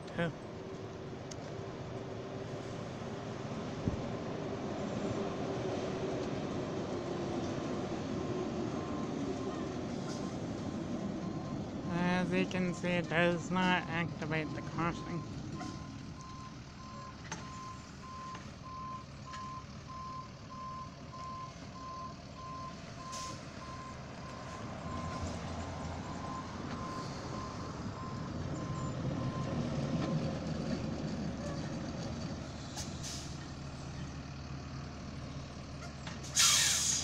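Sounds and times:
diesel engine running: 0:00.0 - 0:37.0
backup alarm beeping: 0:12.2 - 0:24.0
short loud hiss: 0:36.3 - 0:37.0.

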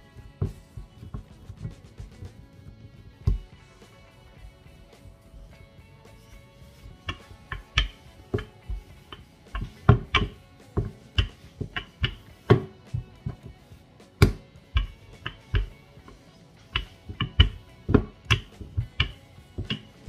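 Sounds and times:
faint guitar music: 0:00.0 - 0:20.0
rolling pin knocking on dough: 0:07.1 - 0:13.4, 0:14.2 - 0:15.8, 0:16.8 - 0:20.0.

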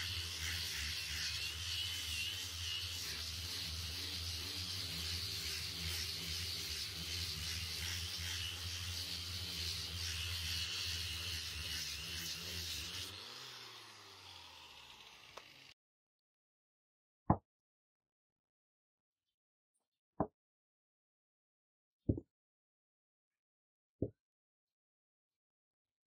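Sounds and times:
angle grinder sanding wood: 0:00.0 - 0:15.8.

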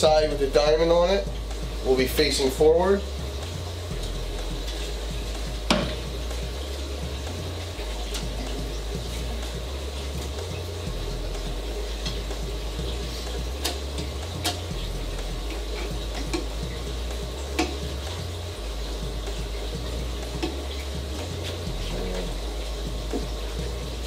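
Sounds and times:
background music with bass line: 0:00.0 - 0:24.0.

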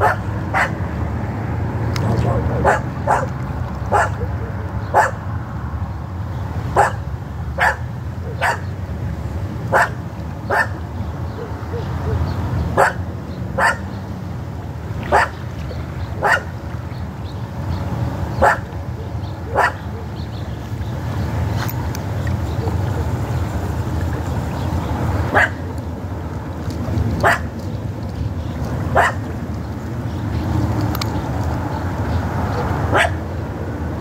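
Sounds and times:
dog barking: 0:00.0 - 0:00.8, 0:02.1 - 0:03.3, 0:03.9 - 0:05.2, 0:06.8 - 0:07.0, 0:07.6 - 0:08.7, 0:09.7 - 0:13.0, 0:13.6 - 0:13.9, 0:15.1 - 0:15.4, 0:16.2 - 0:16.5, 0:18.4 - 0:20.2, 0:25.3 - 0:25.7, 0:27.2 - 0:27.5, 0:28.9 - 0:29.2, 0:32.6 - 0:33.2.

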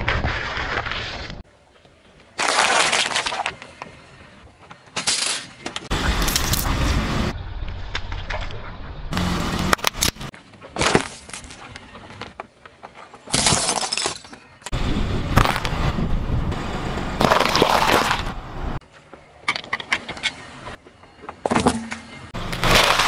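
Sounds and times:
tyre crushing plastic containers: 0:17.2 - 0:18.3, 0:21.5 - 0:23.0.

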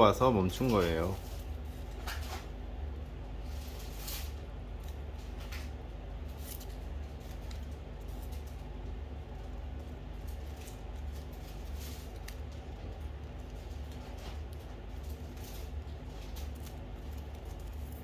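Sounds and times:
steady low hum: 0:00.0 - 0:18.0
scissors snipping paper: 0:10.2 - 0:18.0.

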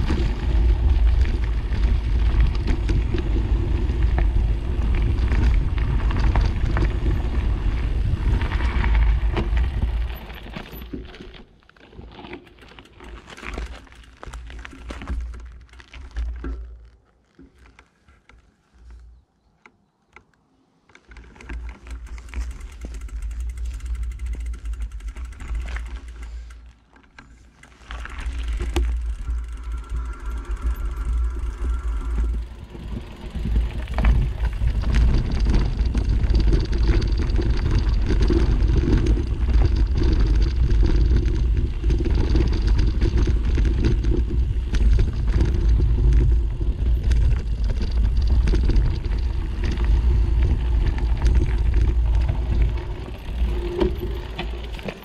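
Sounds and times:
wind buffeting microphone: 0:00.0 - 0:10.4, 0:28.2 - 0:55.0.

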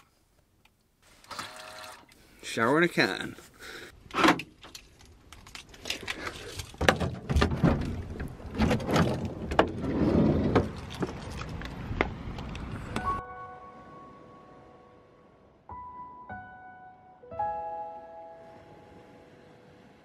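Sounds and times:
sliding van door clicks and clunks: 0:04.1 - 0:04.8, 0:06.7 - 0:12.6.

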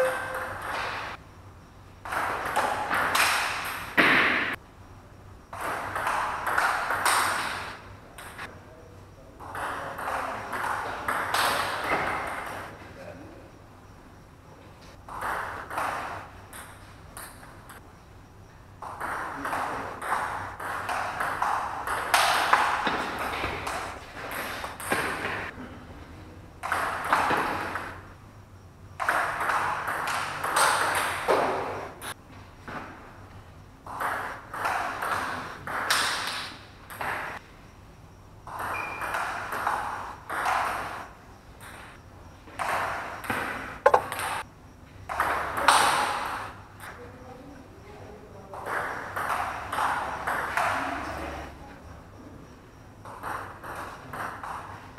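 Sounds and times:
table tennis rallies: 0:00.0 - 0:01.2, 0:02.0 - 0:04.6, 0:05.5 - 0:08.5, 0:09.4 - 0:12.8, 0:15.1 - 0:17.8, 0:18.8 - 0:25.6, 0:42.5 - 0:44.5.

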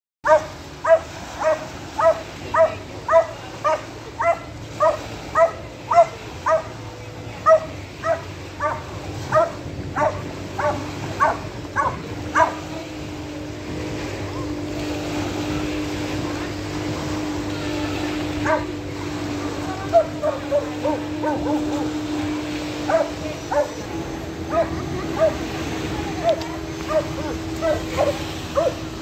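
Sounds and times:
dog barking: 0:00.3 - 0:06.7, 0:07.4 - 0:12.6, 0:18.4 - 0:18.7, 0:20.0 - 0:21.9, 0:22.9 - 0:23.8, 0:24.5 - 0:25.4, 0:26.2 - 0:28.8
steady low hum: 0:00.3 - 0:29.0.

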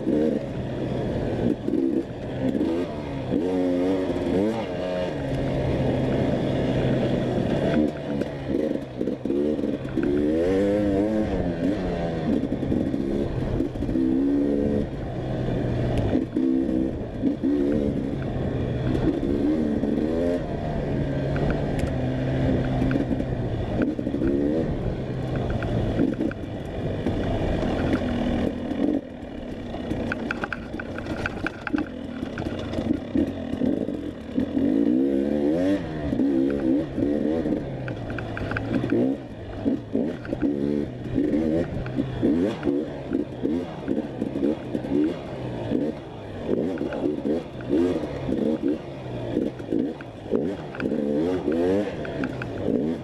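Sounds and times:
dirt bike engine revving: 0:00.0 - 0:53.0
bike clattering over rough ground: 0:29.4 - 0:33.7.

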